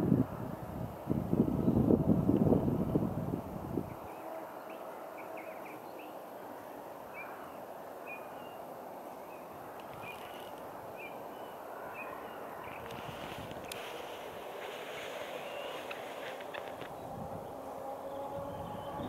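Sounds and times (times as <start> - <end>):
steady outdoor hiss: 0.0 - 19.0
small bird chirping: 9.3 - 13.9, 15.2 - 17.2.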